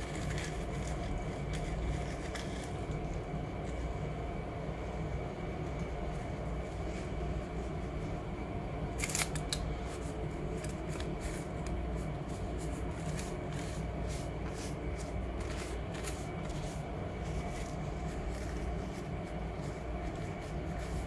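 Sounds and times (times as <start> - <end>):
low background hum: 0.0 - 21.0
paper rustling: 9.0 - 21.0.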